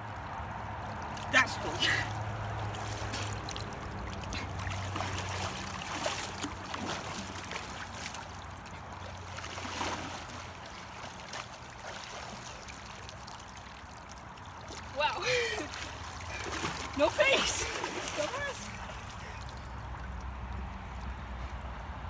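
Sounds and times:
river water flowing: 0.0s - 22.0s
person wading splashes: 0.1s - 21.7s.

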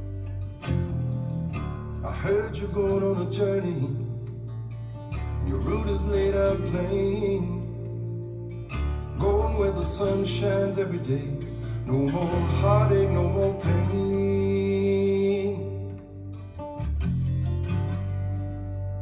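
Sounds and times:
guitar: 0.0s - 19.0s
steady bass: 0.0s - 19.0s
song with singing voice: 2.0s - 16.7s.

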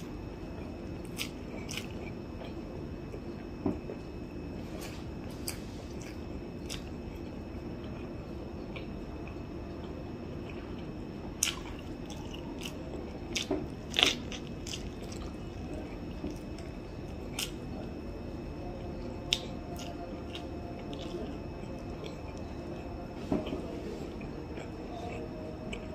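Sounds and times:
low background hum: 0.0s - 25.9s
crisp corn bites and chewing: 0.6s - 2.6s, 8.7s - 17.7s, 19.2s - 25.9s.

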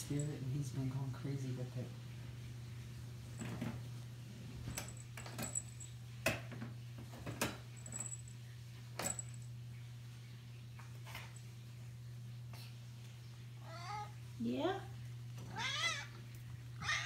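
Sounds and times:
light metallic clicks and jingles: 4.7s - 6.0s, 7.7s - 8.4s.

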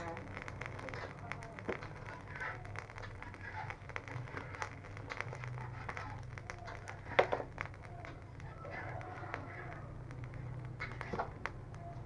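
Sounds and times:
charcoal fire crackling and popping: 0.0s - 12.0s
sharp snaps: 0.0s - 12.0s.

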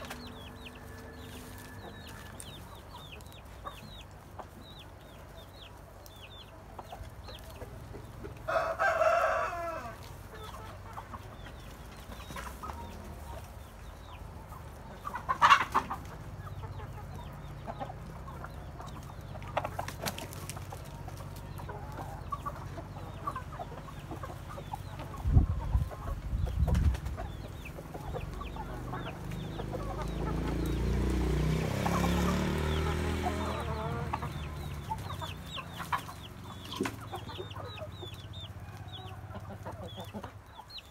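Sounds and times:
hens clucking: 0.0s - 40.9s
loud chicken call: 8.4s - 10.8s, 31.5s - 36.1s.

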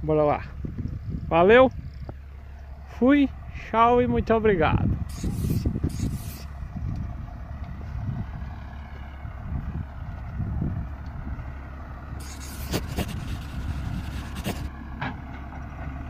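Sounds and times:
diesel machinery rumbling: 0.0s - 16.0s
hiss: 5.1s - 6.5s.

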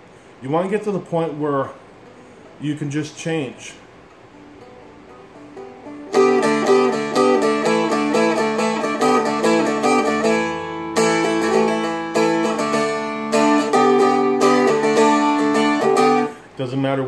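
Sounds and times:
strummed string instrument chords: 4.1s - 16.4s.

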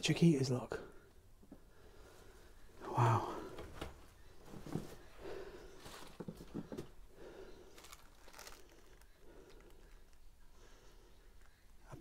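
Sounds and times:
clutter rustling and knocking: 3.5s - 5.2s, 5.8s - 7.0s.

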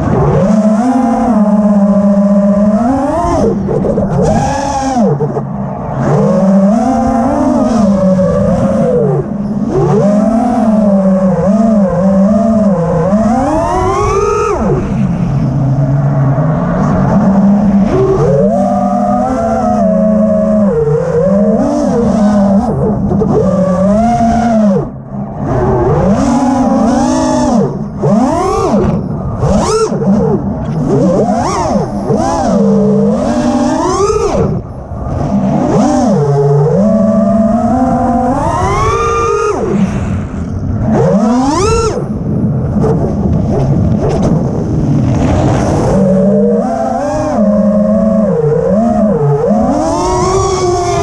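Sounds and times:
drone motors and propellers whining: 0.0s - 51.0s
wind noise on microphone: 0.0s - 51.0s.

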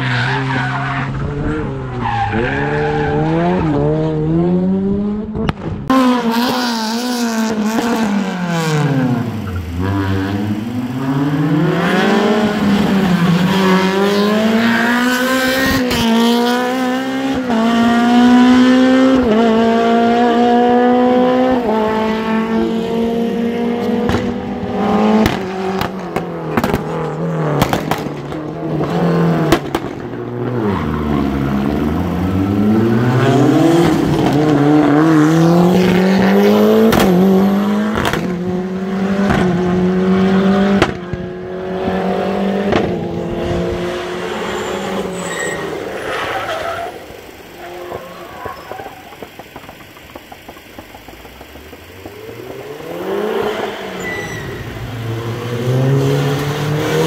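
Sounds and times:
rally car engines revving: 0.0s - 57.0s
sharp cracks: 27.6s - 28.4s.

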